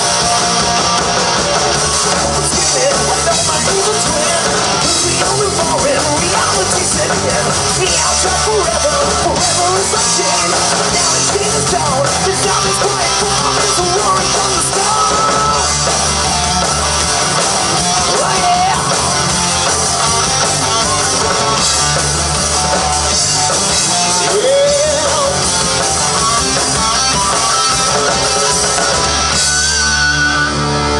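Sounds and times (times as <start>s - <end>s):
electric guitar line sliding up: 0.0s - 30.9s
rock band playing live: 0.0s - 30.9s.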